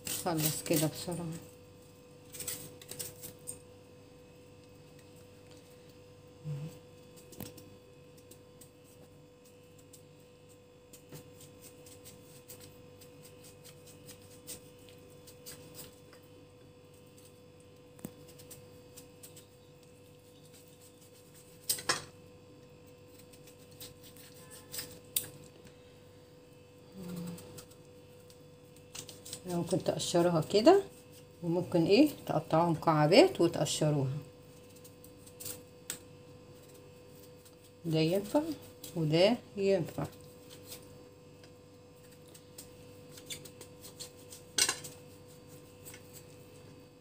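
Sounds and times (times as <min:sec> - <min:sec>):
knife and spoon scraping pumpkin: 0:00.0 - 0:01.4, 0:10.9 - 0:16.2, 0:18.0 - 0:22.2, 0:22.9 - 0:25.4, 0:28.8 - 0:35.7, 0:42.0 - 0:46.7.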